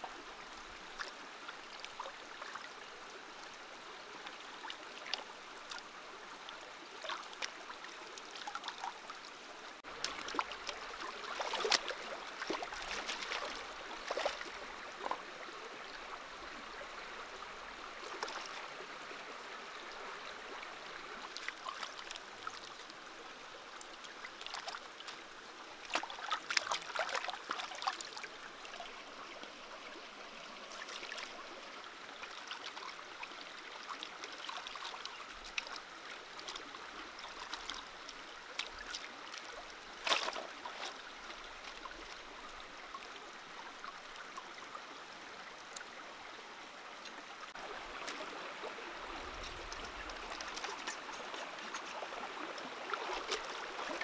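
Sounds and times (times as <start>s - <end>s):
stream running over rocks: 0.0s - 54.0s
water splashes and knocks: 9.8s - 15.2s, 18.0s - 18.6s, 24.4s - 25.2s, 25.9s - 28.3s, 37.3s - 41.0s, 49.4s - 54.0s.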